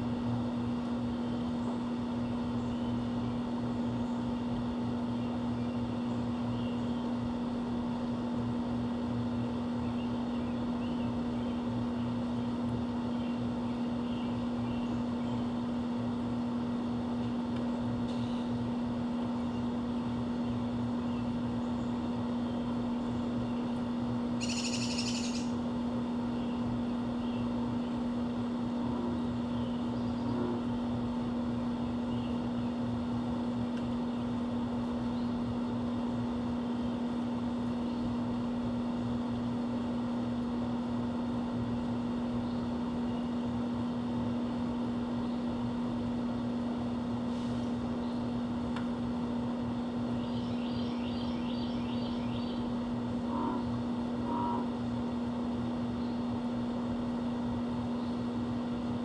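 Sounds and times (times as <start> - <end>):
steady low hum: 0.0 - 59.0
faint bird chirps: 24.4 - 25.5, 50.2 - 52.7
harsh bird call: 24.4 - 25.5.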